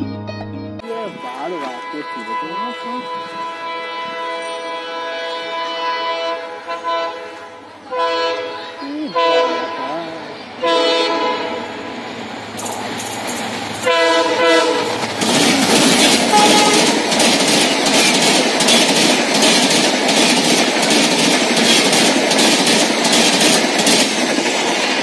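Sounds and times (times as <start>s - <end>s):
locomotive horn: 0.8s - 11.9s, 13.8s - 17.2s
train coaches rushing past: 0.8s - 25.0s
wheels clattering over rail joints: 14.6s - 25.0s.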